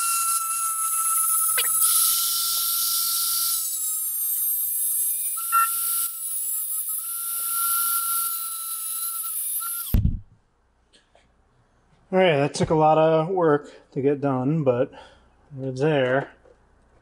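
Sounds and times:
rotary tool grinding metal: 0:00.0 - 0:10.0.

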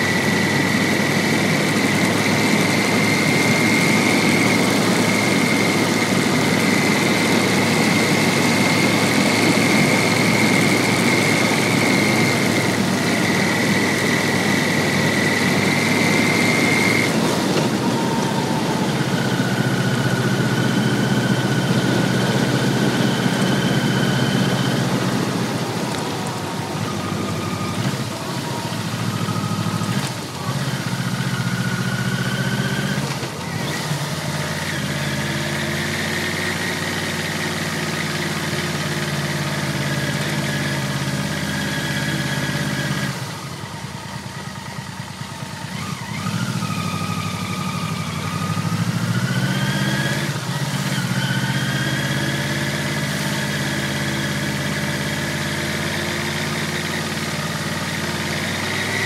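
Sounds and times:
steady high whine: 0:00.0 - 0:45.1
motorcycle engine running: 0:00.0 - 0:59.0.

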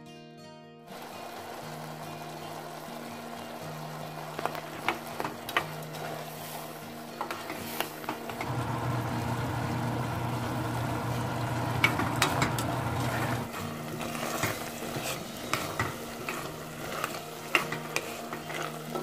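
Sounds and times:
peas simmering in sauce: 0:00.9 - 0:19.0
sizzling hiss: 0:00.9 - 0:19.0
plastic spatula scraping pot: 0:11.8 - 0:19.0.

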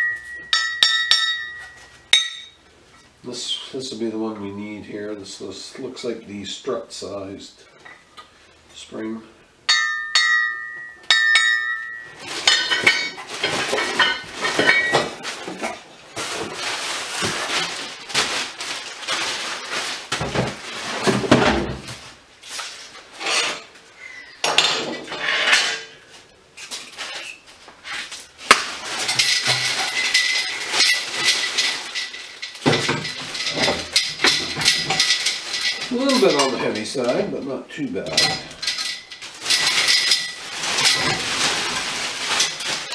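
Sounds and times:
metal clang: 0:00.0 - 0:02.6, 0:09.7 - 0:15.1
steel parts clinking: 0:00.0 - 0:02.6, 0:09.7 - 0:15.1, 0:29.0 - 0:37.4, 0:38.0 - 0:41.3
plastic wrapping crinkling: 0:12.1 - 0:21.2, 0:26.6 - 0:37.3, 0:38.1 - 0:42.9.

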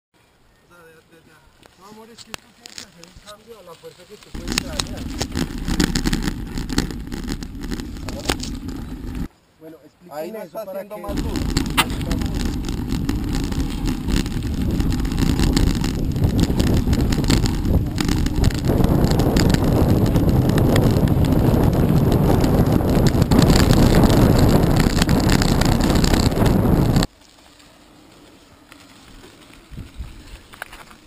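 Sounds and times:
tyre rumble on gravel: 0:04.3 - 0:09.3, 0:11.1 - 0:31.0
wind buffeting microphone: 0:04.4 - 0:09.3, 0:11.1 - 0:27.1, 0:29.6 - 0:30.6.

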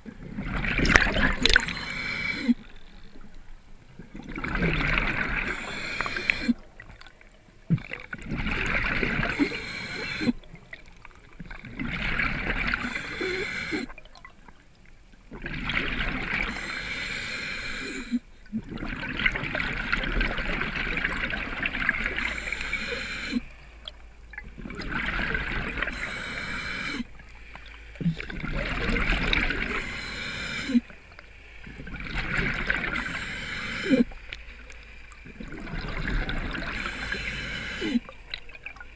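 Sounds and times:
exhaled air bubbling: 0:00.0 - 0:38.9
diver breathing through regulator: 0:01.3 - 0:02.7, 0:05.0 - 0:06.7, 0:08.8 - 0:10.4, 0:12.7 - 0:14.0, 0:16.4 - 0:18.3, 0:21.9 - 0:23.6, 0:25.5 - 0:31.0, 0:32.6 - 0:34.2, 0:36.2 - 0:38.2.

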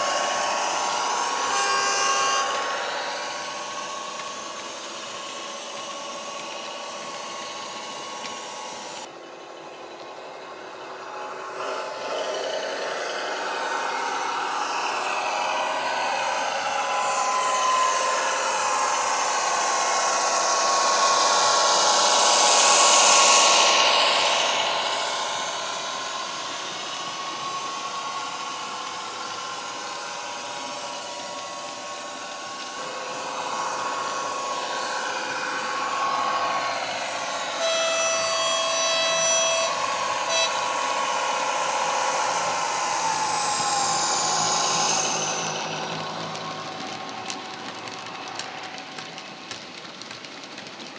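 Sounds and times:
model locomotive engine whine: 0:00.0 - 0:50.9
model train running on track: 0:00.0 - 0:50.9
locomotive horn: 0:37.5 - 0:41.2.

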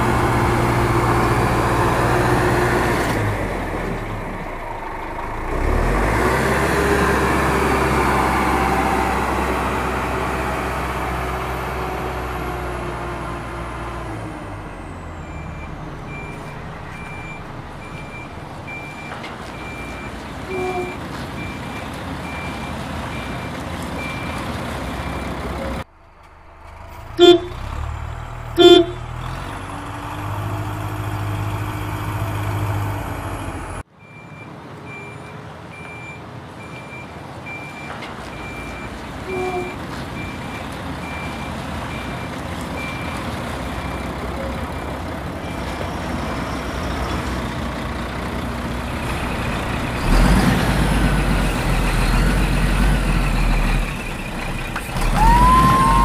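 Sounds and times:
truck engine running: 0:00.0 - 0:33.9, 0:38.7 - 0:56.0
reversing alarm beeping: 0:27.1 - 0:27.7, 0:28.6 - 0:29.1
loud short horn blasts: 0:27.2 - 0:27.7, 0:28.6 - 0:29.1.

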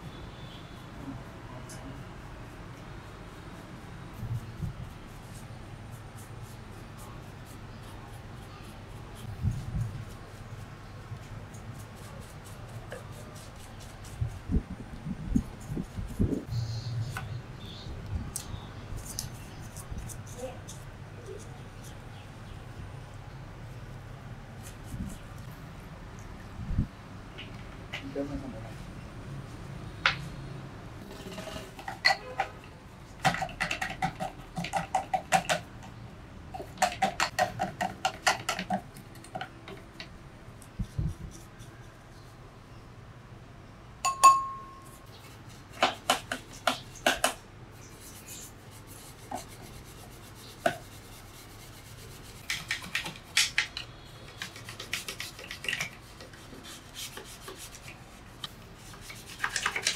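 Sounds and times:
short ringing clink: 0:44.1 - 0:44.8
wet brush scrubbing: 0:47.8 - 0:53.4, 0:54.2 - 0:59.9.

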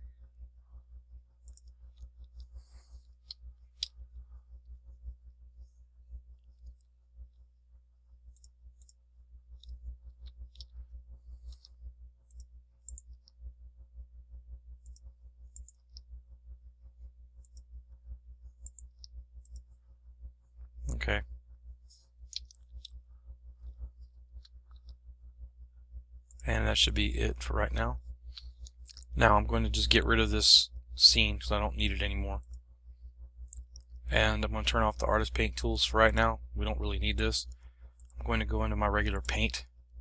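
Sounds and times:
low steady hum: 0:00.0 - 0:40.0.

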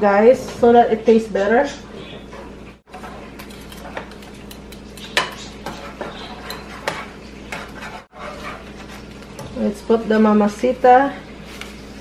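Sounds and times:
utensil scraping a pan: 0:02.3 - 0:09.2
utensil stirring in a pan: 0:02.9 - 0:10.7.

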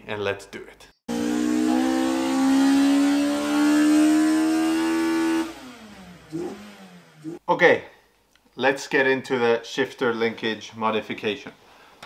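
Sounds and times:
car engine accelerating: 0:01.1 - 0:07.4.

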